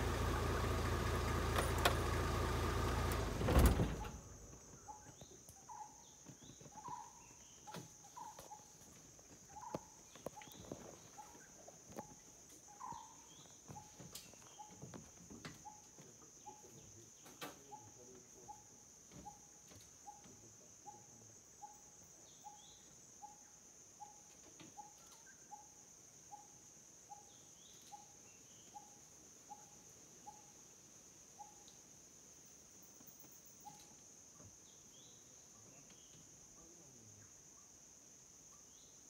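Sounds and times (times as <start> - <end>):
bird chirps: 4.0 - 8.8, 9.5 - 14.9.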